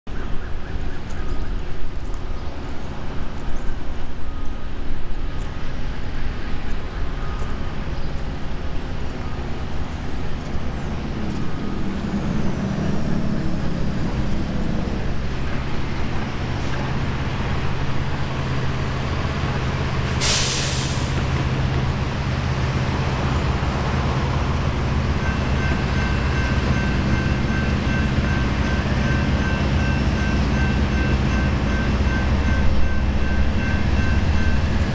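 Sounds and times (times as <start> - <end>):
locomotive engine drone: 0.1 - 34.9
sharp hiss: 20.1 - 21.4.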